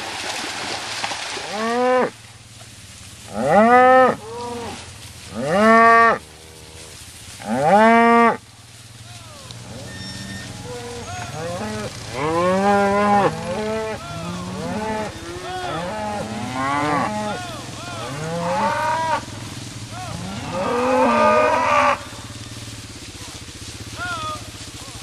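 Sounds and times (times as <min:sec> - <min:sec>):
cattle mooing: 0:01.4 - 0:02.1, 0:03.3 - 0:08.4, 0:09.2 - 0:22.4.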